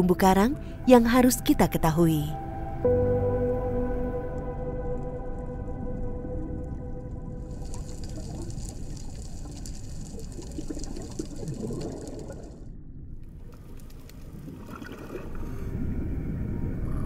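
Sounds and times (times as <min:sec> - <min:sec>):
low rumble: 0:00.1 - 0:17.0
water bubbling and gurgling: 0:04.0 - 0:17.0.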